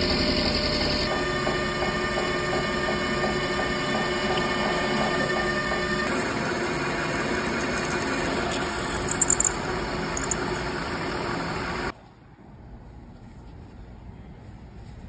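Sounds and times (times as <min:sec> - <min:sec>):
lathe drilling metal: 0:00.0 - 0:11.9
drill squeaks: 0:07.5 - 0:11.9.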